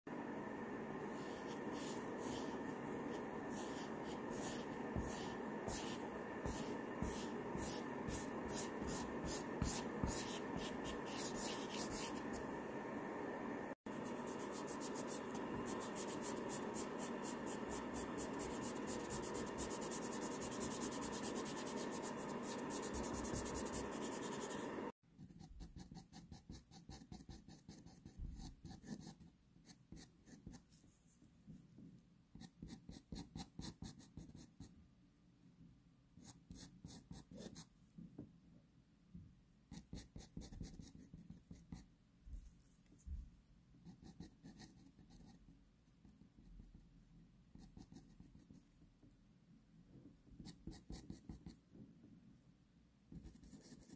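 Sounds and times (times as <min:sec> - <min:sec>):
pastel scratching on paper: 0:01.0 - 0:12.5, 0:13.9 - 0:30.8.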